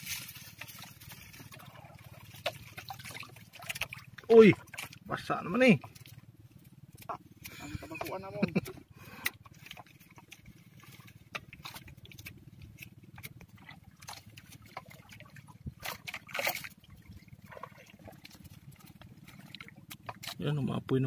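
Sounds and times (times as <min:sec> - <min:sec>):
dry fronds rustling: 0:00.0 - 0:05.0
water sloshing against a hull: 0:00.0 - 0:21.0.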